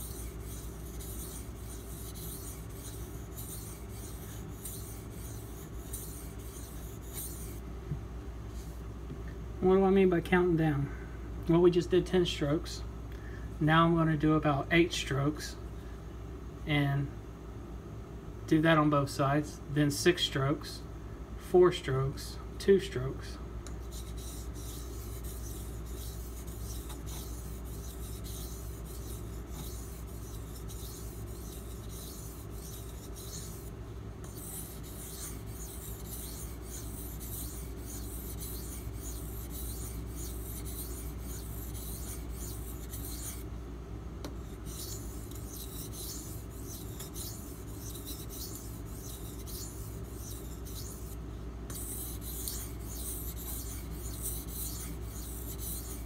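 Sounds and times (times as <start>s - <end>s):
knife scraping on water stone: 0.0s - 7.6s, 23.9s - 43.4s, 44.4s - 56.0s.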